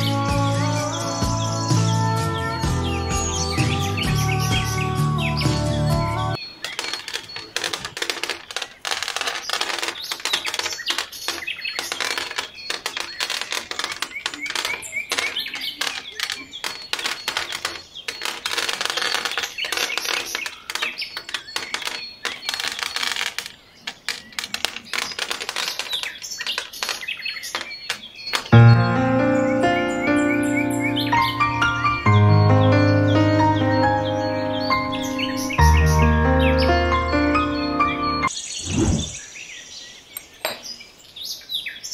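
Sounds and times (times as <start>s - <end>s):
pebbles clattering on hard base: 6.6s - 28.5s.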